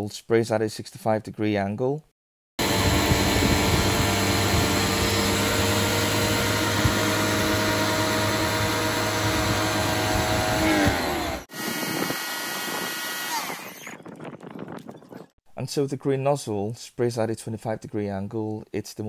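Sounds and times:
pressure washer motor whine: 2.6 - 14.0.

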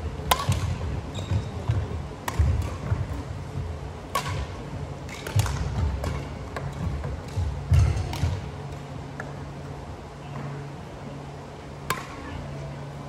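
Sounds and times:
racket striking shuttlecock: 0.2 - 3.3, 4.0 - 9.4, 11.8 - 12.2.

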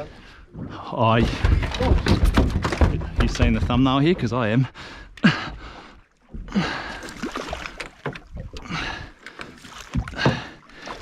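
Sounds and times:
water splashing against boat: 0.0 - 11.0
knocks: 1.2 - 4.4
fish thrashing at surface: 6.9 - 8.5.

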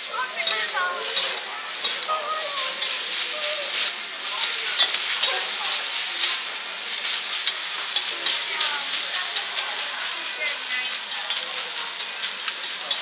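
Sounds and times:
food sizzling on a griddle: 0.0 - 13.0
metal spatulas scraping: 0.4 - 2.1.

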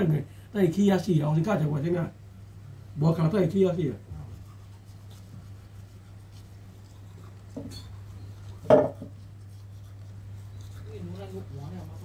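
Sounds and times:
low steady hum: 0.0 - 12.0
toothbrush scrubbing teeth: 3.2 - 12.0.

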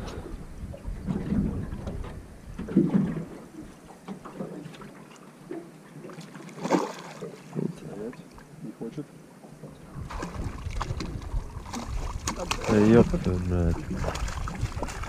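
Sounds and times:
wind rumbling on microphone: 0.0 - 3.8, 9.7 - 15.0
water slapping against boat hull: 1.0 - 8.1, 10.0 - 15.0.

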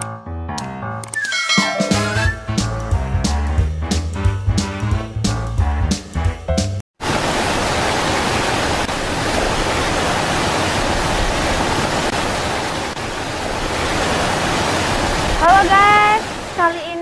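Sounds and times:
guitar music: 0.7 - 3.3
flowing water rushing: 7.0 - 17.0.

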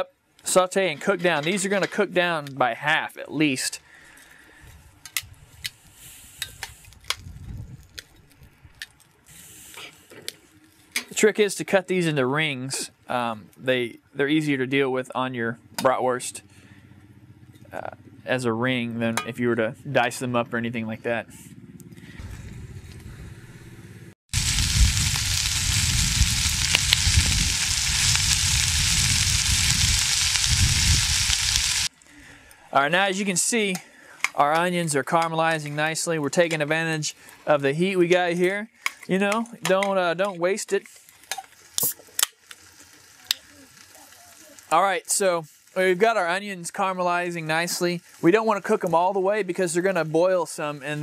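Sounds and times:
low rumble: 22.1 - 31.9
onions sizzling: 24.3 - 31.9, 40.9 - 51.0.

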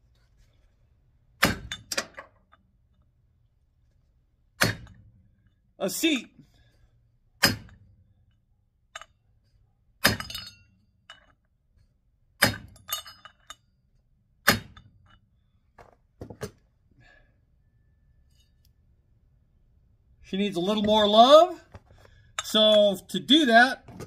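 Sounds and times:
hammer striking metal: 7.4 - 7.8, 12.4 - 13.4.

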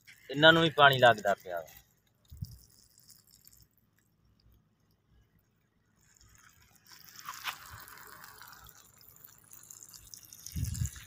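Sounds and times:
light crackles: 0.0 - 11.0
water trickling into sand: 0.0 - 11.0.

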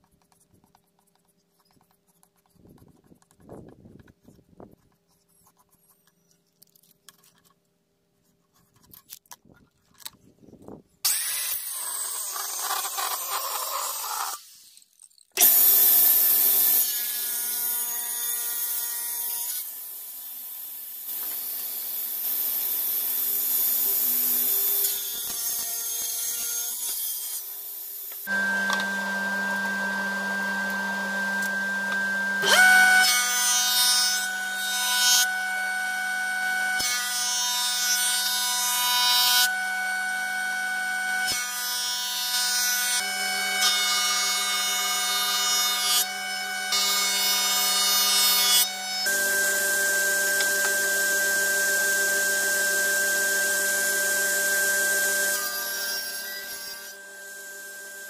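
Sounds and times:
table saw cutting wood: 11.1 - 58.0
jointer-planer cutting wood: 28.2 - 58.0.

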